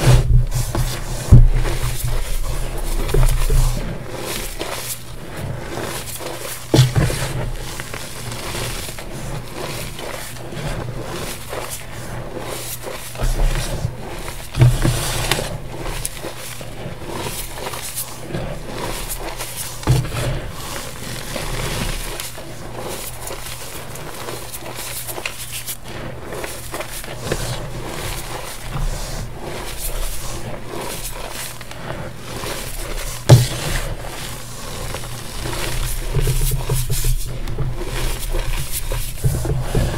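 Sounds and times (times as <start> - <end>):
thuds: 0.0 - 3.9, 6.7 - 8.5, 19.8 - 20.8, 32.9 - 34.1
soft hiss of shifting powder: 0.0 - 39.9.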